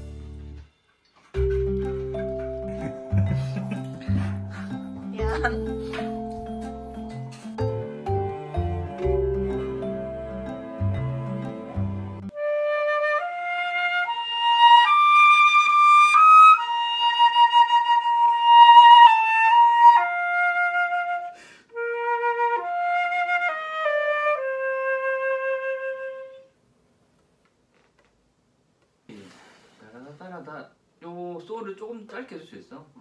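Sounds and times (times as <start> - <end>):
flute playing slow melody: 1.4 - 26.5.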